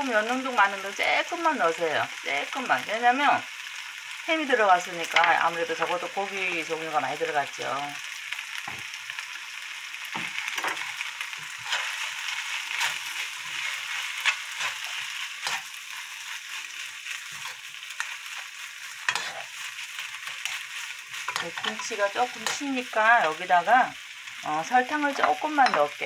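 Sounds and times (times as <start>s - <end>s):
rice sizzling in a frying pan: 0.0s - 26.0s
spatula scraping a pan: 10.1s - 23.3s.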